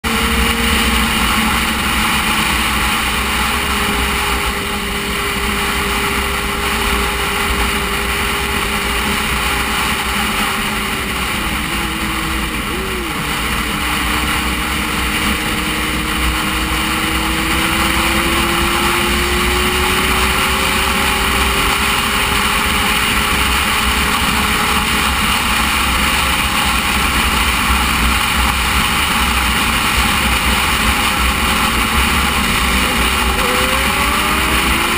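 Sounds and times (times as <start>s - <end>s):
motorcycle engine: 0.0s - 34.9s.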